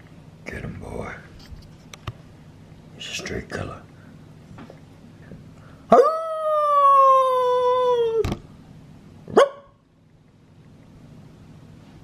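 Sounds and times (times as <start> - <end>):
dog howling: 5.9 - 8.3.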